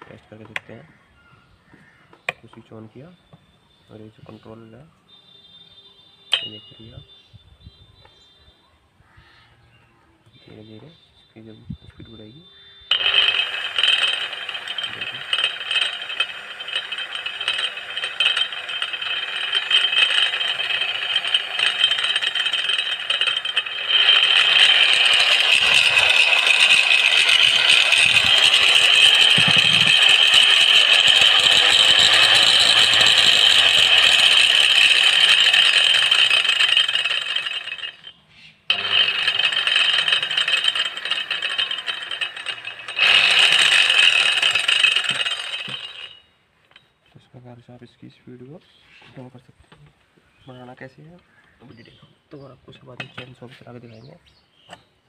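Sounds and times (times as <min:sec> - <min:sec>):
angle grinder with saw blade running: 0:06.3 - 0:07.0, 0:12.9 - 0:46.8, 0:52.8 - 0:53.8.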